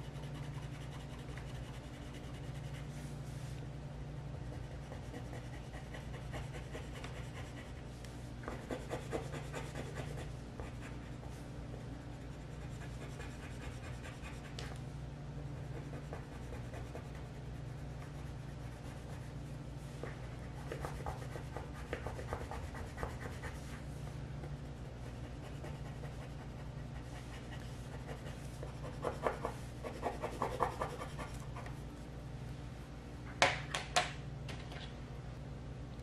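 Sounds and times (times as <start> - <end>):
pencil scratching on paper: 0.0 - 3.1, 4.4 - 7.9, 8.5 - 11.4, 12.1 - 14.6, 15.6 - 19.3, 20.6 - 23.8, 24.8 - 31.7
steady low hum: 0.0 - 36.0.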